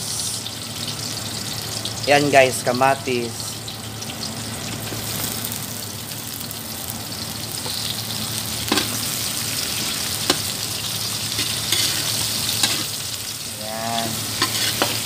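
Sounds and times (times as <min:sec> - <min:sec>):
vegetables sizzling in hot oil: 0:00.0 - 0:15.0.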